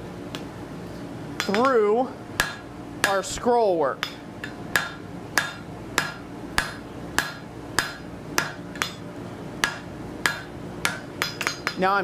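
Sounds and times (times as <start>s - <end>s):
hammer striking steel on anvil: 1.4s - 1.8s, 2.4s - 3.2s, 4.0s - 9.0s, 9.6s - 12.0s.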